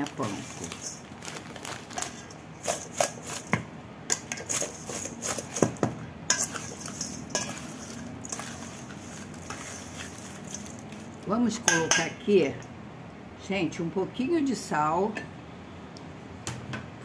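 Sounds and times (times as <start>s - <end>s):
spoon clinking in steel bowl: 6.3s - 10.8s, 11.7s - 12.2s.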